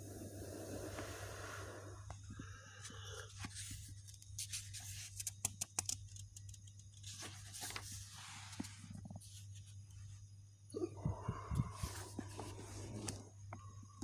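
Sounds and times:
steady low hum: 0:00.0 - 0:14.0
paper pages rustling: 0:03.3 - 0:09.8
paper pages snapping and flapping: 0:03.4 - 0:08.7.

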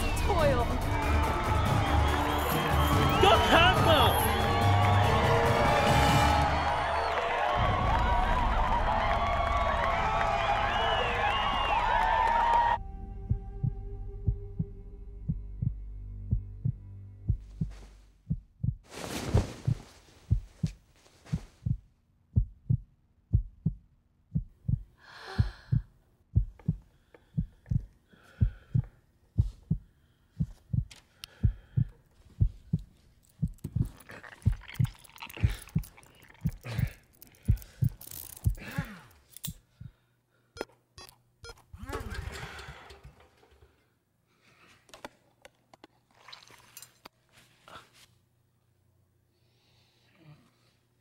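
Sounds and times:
low heartbeat thumping: 0:13.1 - 0:34.8.

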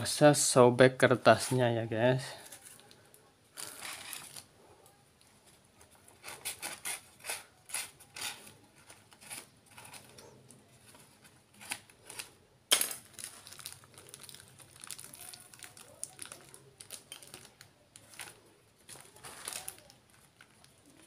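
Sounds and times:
paper tearing and rustling: 0:03.6 - 0:04.5, 0:13.0 - 0:21.0.

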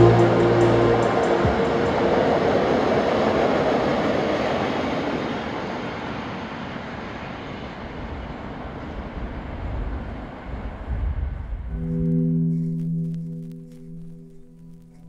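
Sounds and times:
freight train rolling on rails: 0:00.0 - 0:11.1.

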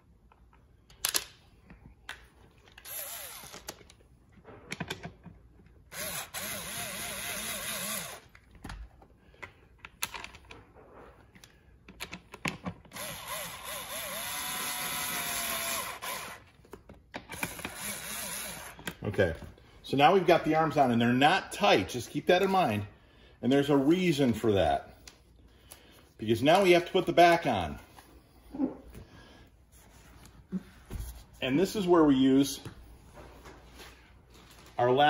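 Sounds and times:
power screwdriver motor whining: 0:02.8 - 0:03.8, 0:05.9 - 0:08.3, 0:12.9 - 0:16.4, 0:17.3 - 0:18.9.

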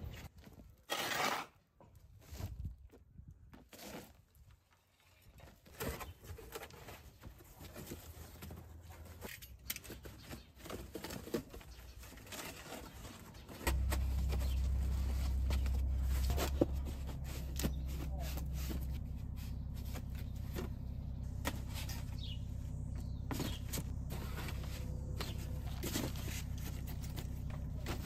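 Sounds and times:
steady low hum: 0:13.6 - 0:28.0.

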